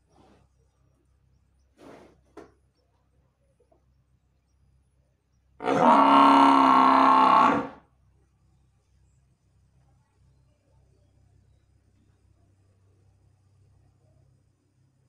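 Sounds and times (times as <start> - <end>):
buffalo bellowing: 5.6 - 7.8.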